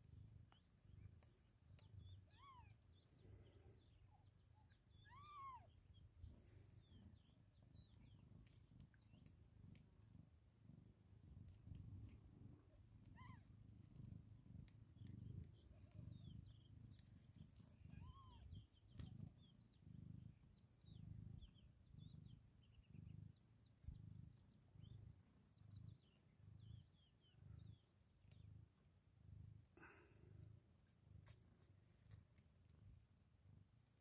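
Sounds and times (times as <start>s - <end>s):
cat purring: 0.0s - 34.0s
kittens chirping and squeaking: 0.5s - 10.1s, 11.4s - 28.5s.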